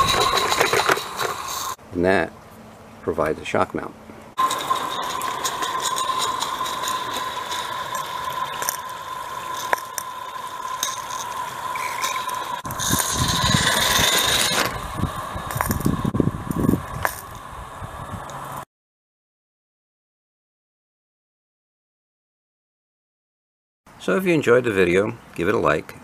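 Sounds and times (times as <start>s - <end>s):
model steam locomotive running: 0.0s - 1.8s, 4.4s - 17.4s
wheels clicking over rails: 0.0s - 1.8s, 4.3s - 17.4s.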